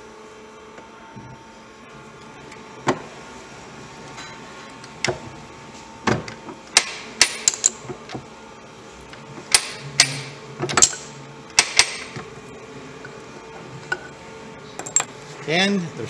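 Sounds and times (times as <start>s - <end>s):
steady hum: 0.0s - 16.0s.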